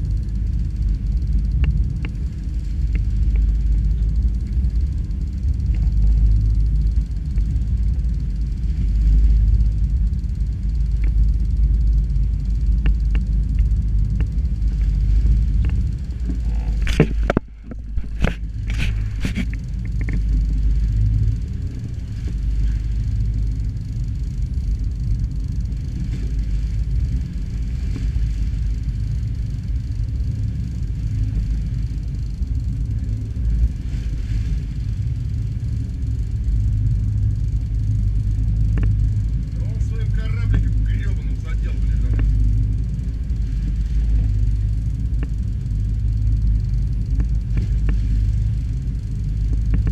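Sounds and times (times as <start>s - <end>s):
wind buffeting microphone: 0.0s - 49.9s
faint clicks: 1.5s - 6.6s, 10.9s - 21.4s, 39.9s - 43.0s.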